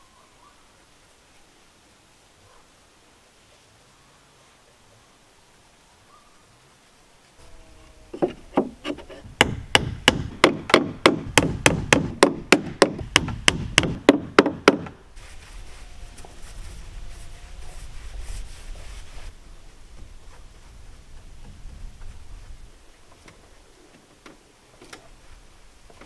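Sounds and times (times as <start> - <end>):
hammer blows on wood: 8.2 - 15.0.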